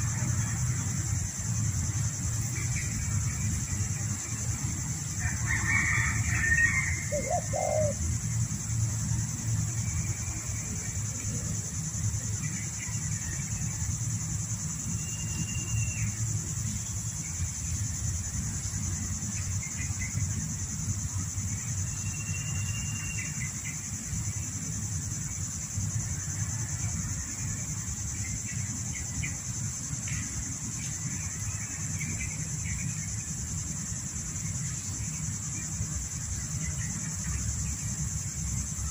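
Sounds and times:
insect drone: 0.0s - 38.9s
dove cooing: 6.9s - 8.0s.

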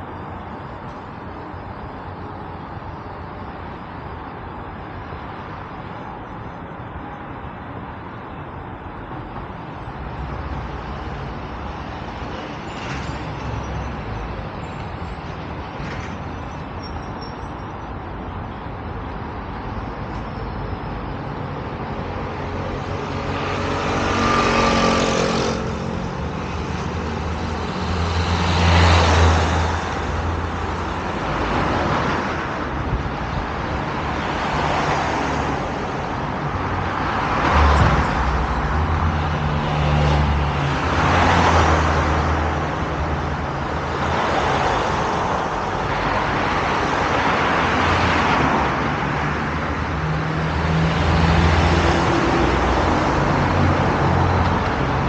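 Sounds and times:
low rumble of traffic: 0.0s - 55.0s
cars passing close by: 17.5s - 55.0s.

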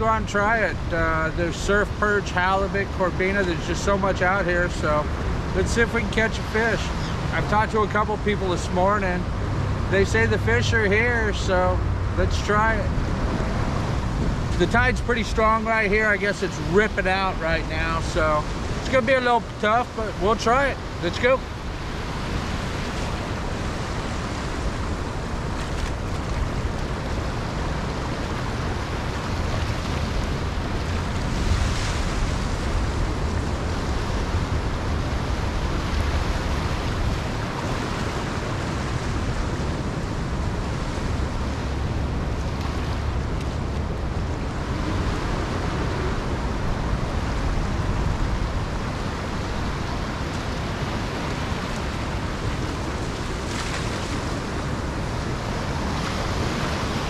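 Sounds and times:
small waves on sandy beach: 0.0s - 57.0s
wind rumbling on microphone: 0.0s - 57.0s.

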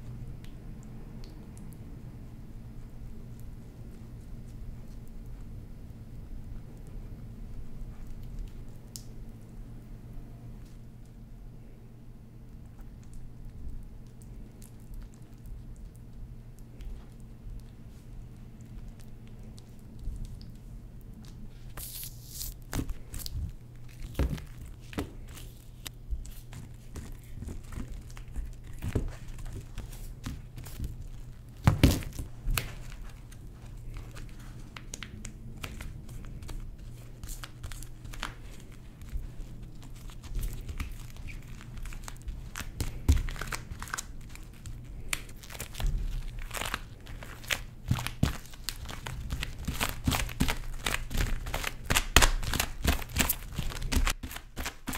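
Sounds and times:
low steady hum: 0.0s - 54.9s
sticky sugar crackling and peeling: 12.4s - 54.9s.

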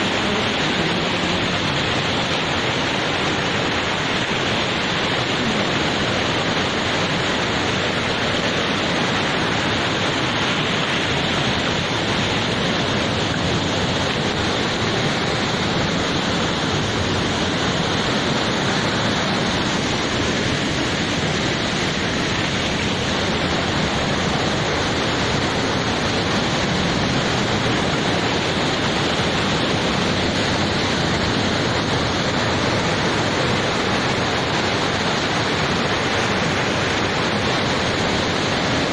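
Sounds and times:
flood water rushing: 0.0s - 38.9s.

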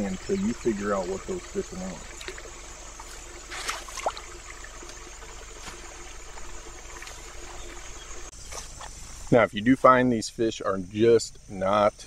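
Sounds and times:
thin bird chirp: 0.0s - 9.3s
faint hum: 0.0s - 12.0s
steady low hiss: 0.0s - 12.0s.

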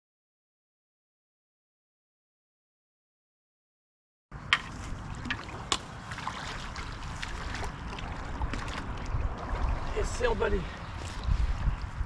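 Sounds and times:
wind rumble on microphone: 4.4s - 12.0s
water splashing: 4.6s - 11.6s.

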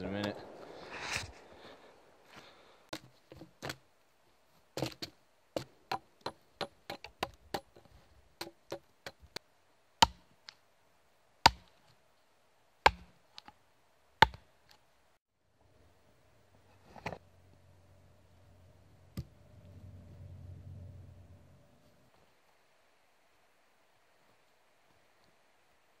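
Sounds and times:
hatchet chopping log: 10.0s - 10.3s, 11.4s - 11.7s, 12.8s - 13.5s, 14.2s - 14.5s.

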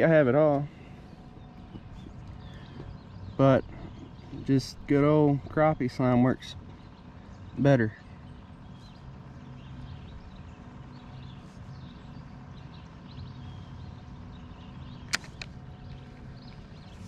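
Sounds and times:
steady low hum: 0.0s - 17.0s
sharp clicks: 15.0s - 15.6s.

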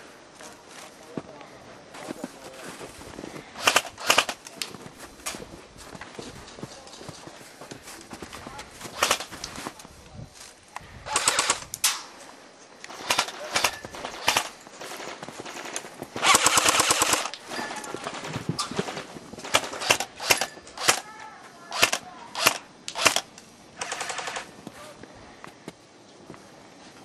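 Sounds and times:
airsoft rifle shots: 3.6s - 4.4s, 9.0s - 9.3s, 11.1s - 12.0s, 12.9s - 17.4s, 19.4s - 21.1s, 21.7s - 24.5s
full-auto airsoft bursts: 3.6s - 4.4s, 8.9s - 9.3s, 11.0s - 11.7s, 12.9s - 17.4s, 19.4s - 21.1s, 21.7s - 24.5s.

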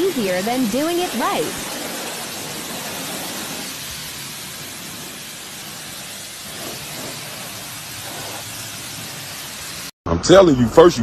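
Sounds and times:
pressure washer spray hissing: 0.0s - 9.9s.

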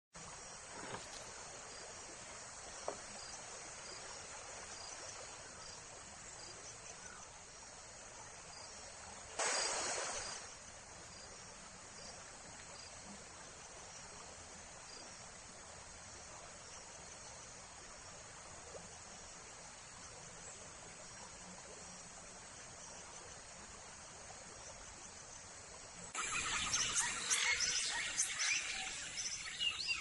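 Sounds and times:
insect chorus: 0.2s - 18.5s, 21.0s - 30.0s
loud burst of rushing noise: 9.4s - 10.5s.

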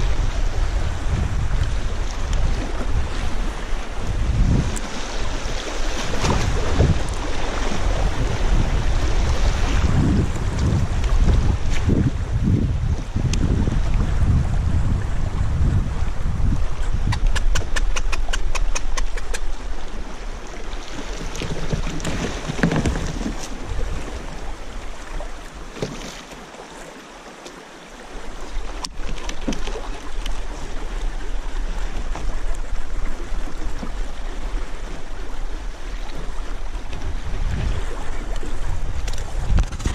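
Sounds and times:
wind buffeting microphone: 0.0s - 25.5s, 28.3s - 39.9s
river current rushing: 0.0s - 39.6s
sharp click: 16.8s - 19.5s
quick run of ticks: 16.8s - 19.6s.

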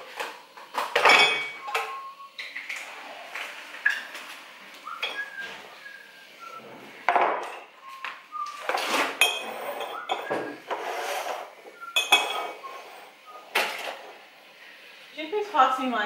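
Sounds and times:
crockery and glass clattering: 0.8s - 2.0s, 5.0s - 5.4s, 7.1s - 7.8s, 9.2s - 10.8s, 11.8s - 12.9s.

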